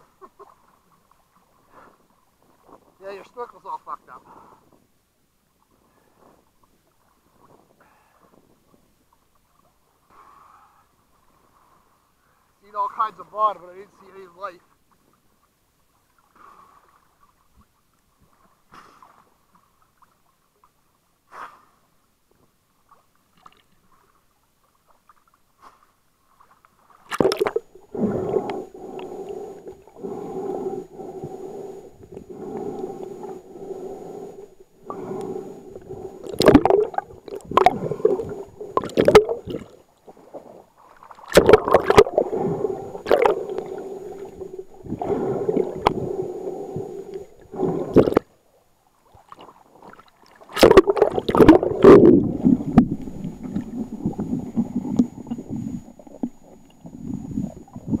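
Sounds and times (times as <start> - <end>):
low underwater hum: 13.2 - 58.0
underwater gurgling: 27.0 - 48.4, 49.1 - 58.0.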